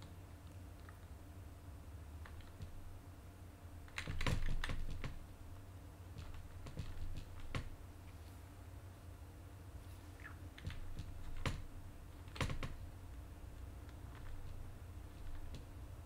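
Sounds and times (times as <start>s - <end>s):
keyboard keys clicking: 3.9s - 5.2s, 6.2s - 7.7s, 10.6s - 12.8s, 13.8s - 15.8s.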